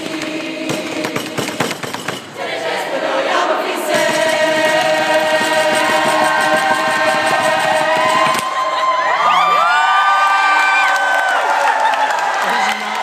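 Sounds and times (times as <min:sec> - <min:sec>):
group singing unaccompanied: 0:00.0 - 0:08.6.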